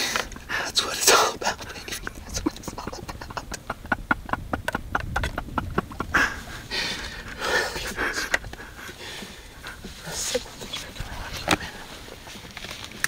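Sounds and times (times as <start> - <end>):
person breathing: 0.0 - 0.8, 6.1 - 12.3.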